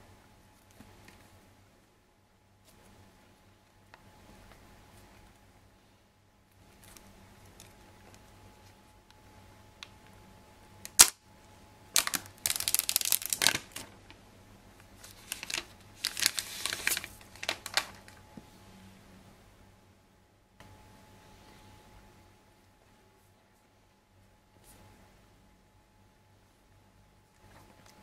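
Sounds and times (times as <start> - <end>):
plastic wrap snapping: 10.9 - 11.2, 11.9 - 14.0, 15.0 - 18.2
plastic wrap crinkling: 11.9 - 14.2, 15.0 - 18.2
plastic wrap tearing: 12.0 - 13.9, 15.0 - 18.2.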